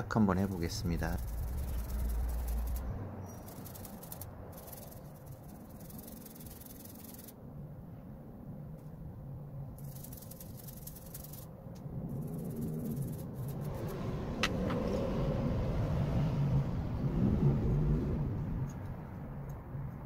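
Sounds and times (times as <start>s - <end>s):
toothbrush scrubbing circuit board: 0.9s - 7.4s, 9.8s - 11.5s, 12.1s - 14.0s.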